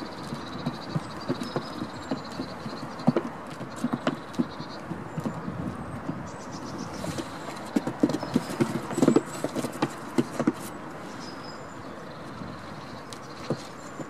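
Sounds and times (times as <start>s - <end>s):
goat hooves on plywood: 0.0s - 11.1s, 13.0s - 14.0s.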